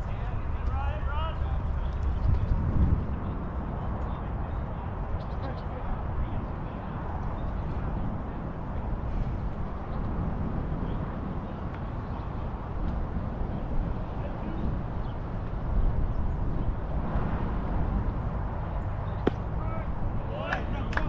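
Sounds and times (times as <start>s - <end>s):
faint distant voices: 0.0s - 12.8s, 13.4s - 16.0s
wind buffeting microphone: 0.0s - 21.0s
sharp crack: 19.2s - 19.5s.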